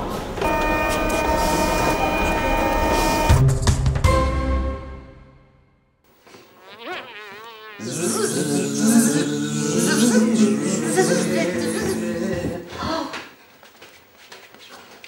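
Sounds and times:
flies buzzing: 6.2 - 10.2.

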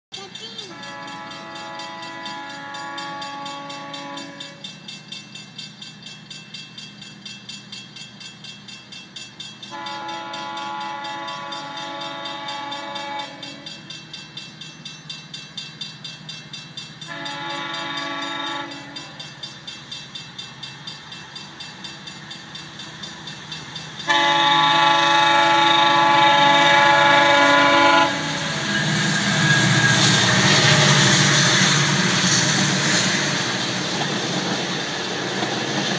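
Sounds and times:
crossing bell dinging: 0.1 - 35.8
train passing with wheel noise: 0.1 - 35.9
locomotive horn blasts: 0.7 - 4.6, 9.7 - 13.6, 17.1 - 19.2, 24.1 - 28.7.

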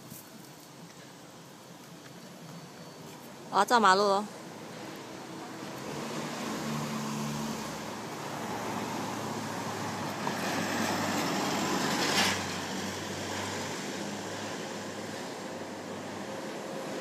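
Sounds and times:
truck passing: 4.5 - 17.0.

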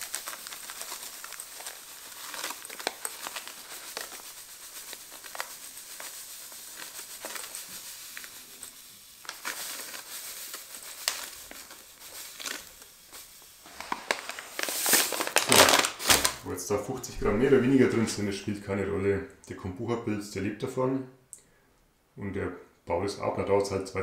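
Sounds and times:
sugar pouring into bowl: 0.0 - 15.4
paper bag crinkling: 0.0 - 18.3.

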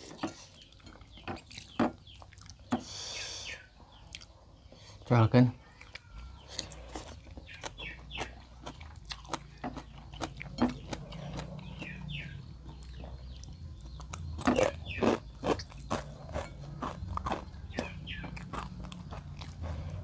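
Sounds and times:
wet chewing and lip smacking: 0.6 - 2.7, 5.7 - 20.0
crunchy bites: 5.8 - 20.0.

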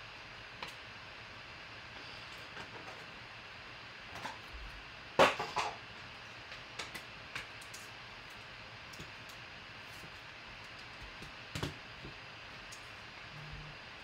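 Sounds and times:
steady low hiss: 3.2 - 14.0.

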